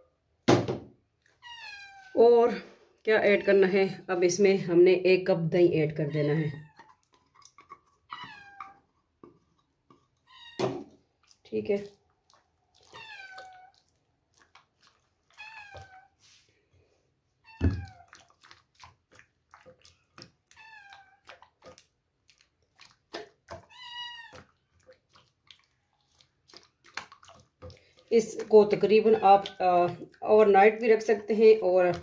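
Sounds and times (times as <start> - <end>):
thump: 0.5 - 0.9
cat meowing: 1.4 - 2.2, 8.1 - 8.8, 12.8 - 13.8, 15.3 - 16.1, 20.5 - 21.3, 23.6 - 24.5
spatula mixing in glass bowl: 21.2 - 32.0.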